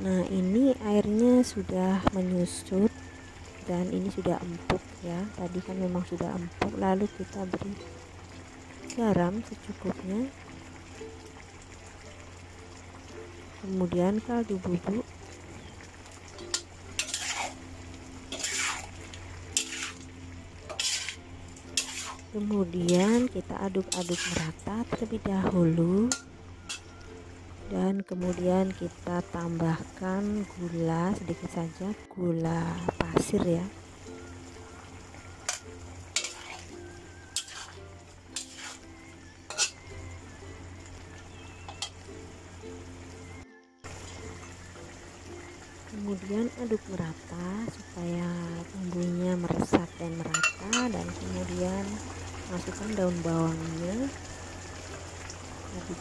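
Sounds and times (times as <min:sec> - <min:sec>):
soft background music: 0:00.0 - 0:56.0
utensil stirring and scraping pan: 0:16.4 - 0:17.6, 0:18.3 - 0:20.1, 0:20.7 - 0:25.0, 0:35.4 - 0:36.7, 0:37.3 - 0:38.9, 0:39.5 - 0:39.8.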